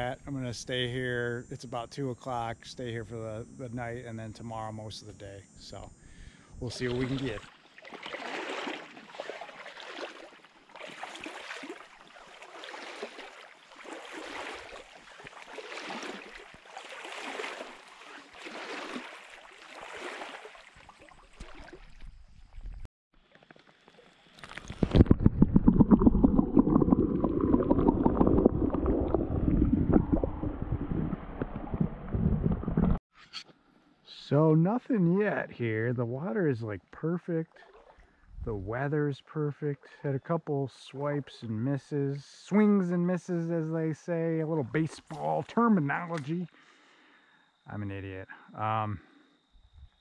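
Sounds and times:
wading steps in stream: 6.7s - 29.2s, 37.3s - 38.2s, 42.4s - 46.8s
underwater stream gurgle: 6.8s - 22.3s, 23.2s - 33.0s.

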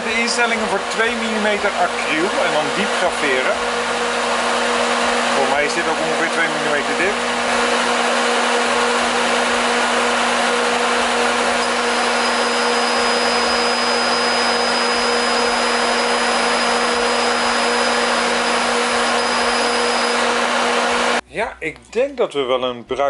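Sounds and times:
laser cutter fan rushing: 0.0s - 21.2s
thin high whine: 8.8s - 21.2s.

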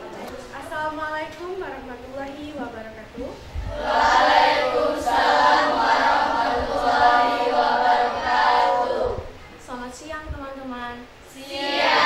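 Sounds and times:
children chanting in unison: 3.7s - 9.4s, 11.3s - 12.0s.

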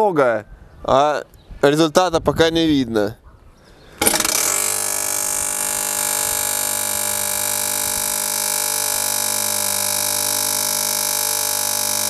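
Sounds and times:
grain crusher whining: 4.0s - 12.0s.

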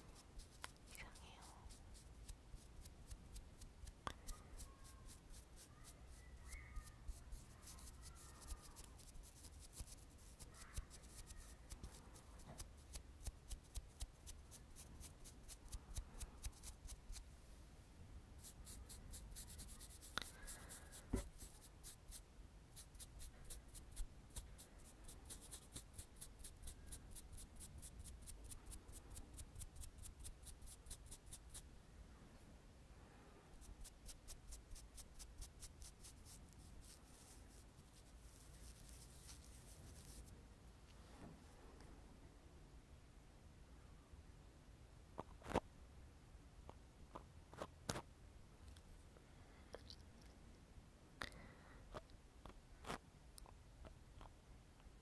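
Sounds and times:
makeup brush swishing: 18.4s - 22.2s, 33.6s - 40.3s.

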